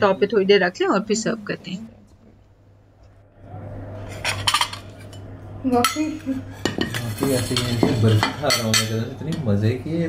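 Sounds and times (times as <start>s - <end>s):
people talking: 0.0s - 2.0s
cutlery and dishes clinking: 4.1s - 5.2s, 6.6s - 9.5s.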